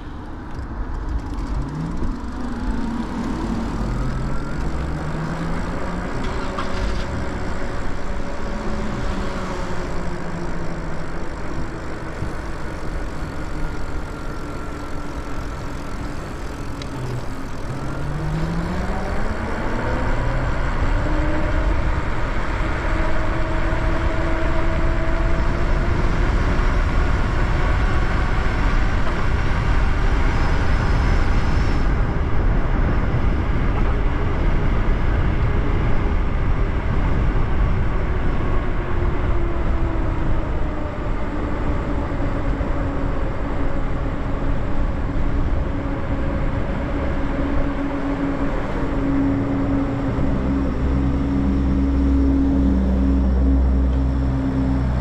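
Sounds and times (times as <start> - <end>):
wind rush on microphone: 0.0 - 55.0
electric motor whining: 1.0 - 22.0.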